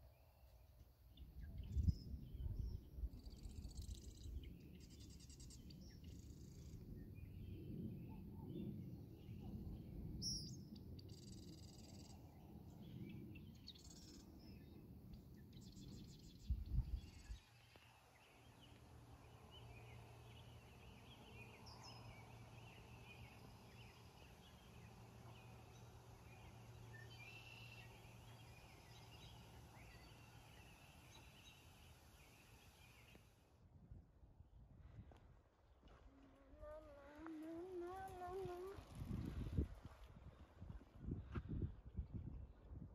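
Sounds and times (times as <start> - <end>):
faint low hum: 0.0 - 42.9
wind rumbling on microphone: 1.1 - 17.5, 33.7 - 42.9.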